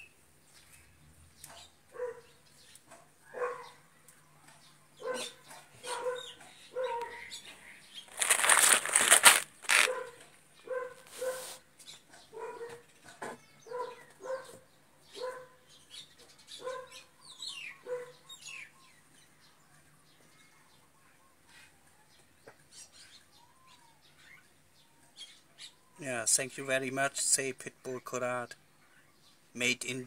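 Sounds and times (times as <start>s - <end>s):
dog barking: 1.9s - 2.3s, 3.3s - 3.8s, 5.0s - 7.3s, 9.8s - 11.6s, 12.3s - 12.8s, 13.7s - 15.6s, 16.6s - 17.0s, 17.8s - 18.2s.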